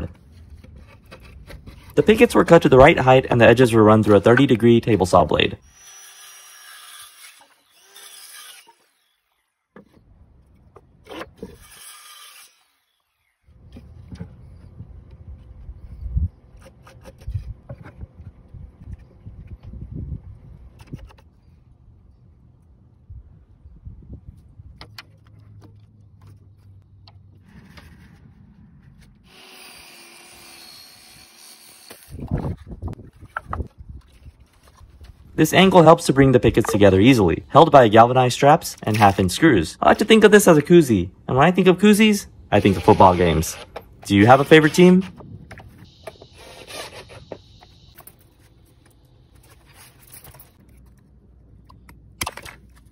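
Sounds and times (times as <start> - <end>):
saw blade hissing through wood: 45.9 - 48.0.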